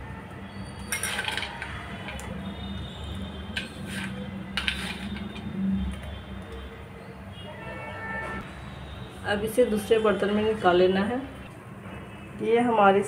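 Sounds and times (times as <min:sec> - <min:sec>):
utensils clattering on cookware: 0:00.8 - 0:02.3, 0:03.5 - 0:05.5.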